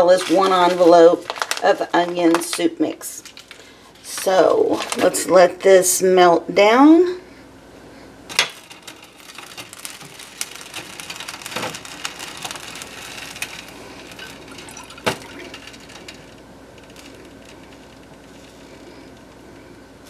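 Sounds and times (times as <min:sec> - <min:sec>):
butter crackling in saucepan: 0:08.3 - 0:20.0.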